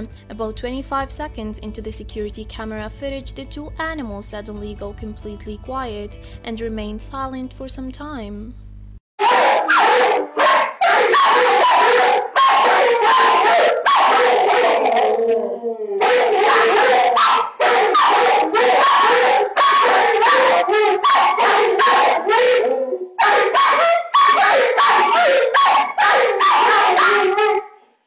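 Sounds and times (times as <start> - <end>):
dogs barking: 9.2 - 27.8.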